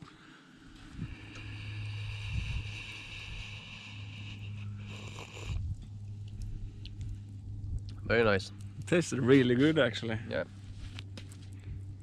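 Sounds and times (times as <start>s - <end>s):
slurping sips of tea: 4.8s - 5.6s.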